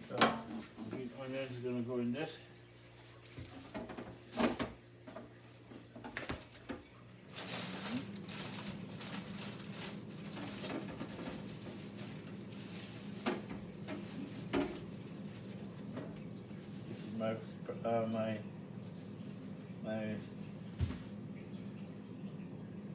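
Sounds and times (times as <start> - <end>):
fridge humming with hiss: 0.0 - 22.9
knocks and clicks of groceries: 3.4 - 16.2, 20.7 - 21.2.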